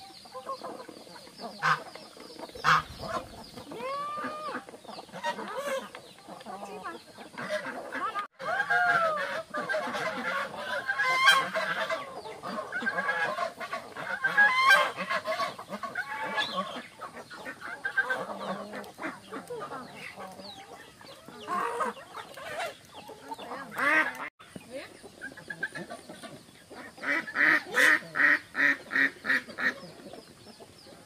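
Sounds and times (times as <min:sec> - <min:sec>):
chickens clucking: 0:00.0 - 0:31.0
ducks quacking: 0:00.0 - 0:31.0.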